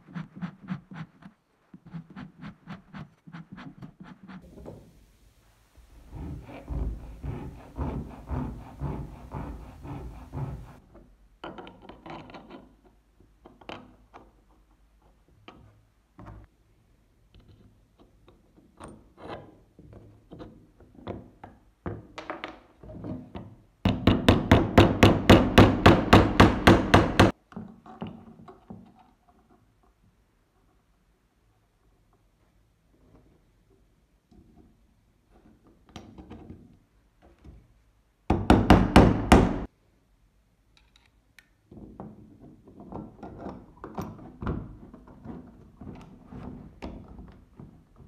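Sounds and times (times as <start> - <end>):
rapid even strokes: 5.8 - 10.8.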